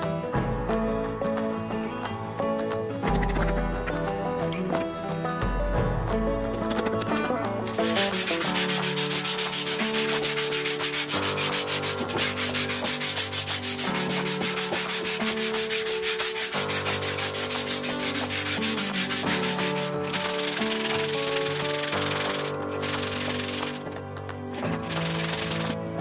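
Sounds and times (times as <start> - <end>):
sandpaper rubbing on wood: 7.7 - 25.8.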